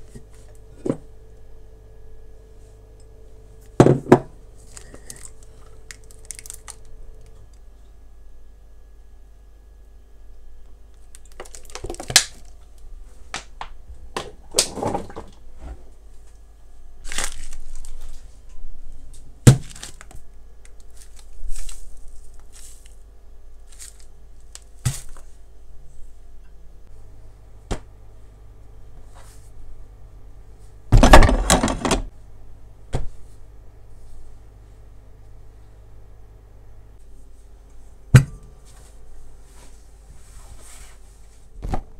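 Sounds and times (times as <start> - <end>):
scraping or rustling: 38.7 - 41.5.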